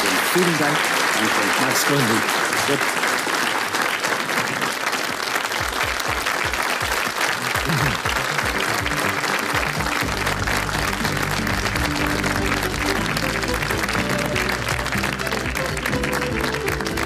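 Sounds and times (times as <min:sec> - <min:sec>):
audience applauding: 0:00.0 - 0:17.0
music: 0:06.7 - 0:17.0.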